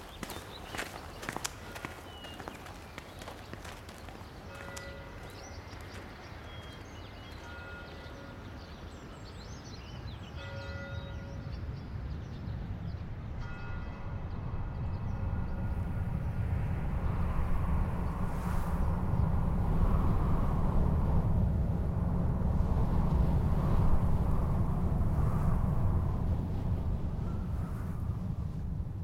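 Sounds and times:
birds chirping: 0.0 - 13.8
low rumble: 14.2 - 29.0.

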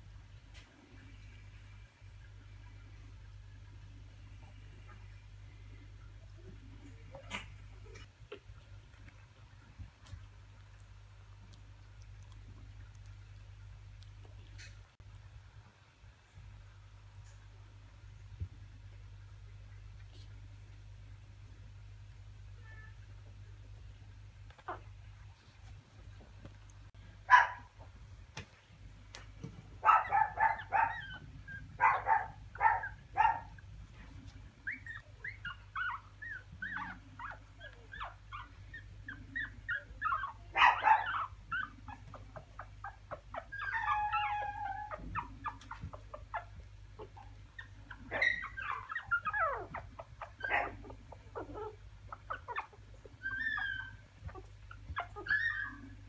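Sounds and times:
puppies whimpering and yipping: 29.9 - 33.4, 34.6 - 56.0.

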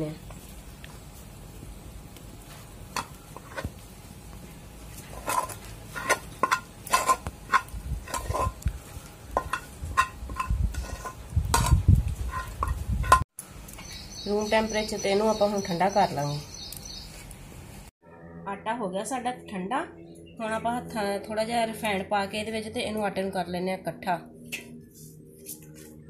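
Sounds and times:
steel spoon scraping metal pan: 5.0 - 8.7, 9.3 - 13.2.

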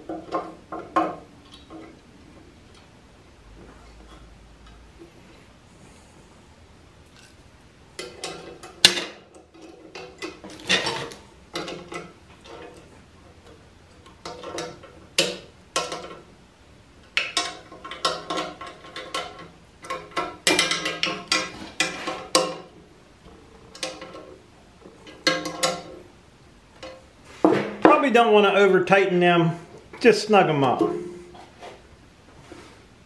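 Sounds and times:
metal bolts clinking: 23.7 - 26.0.

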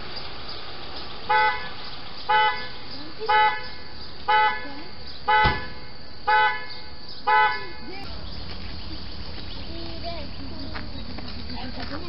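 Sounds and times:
car horn honking: 1.3 - 7.9
sharp knock: 5.4 - 5.7.

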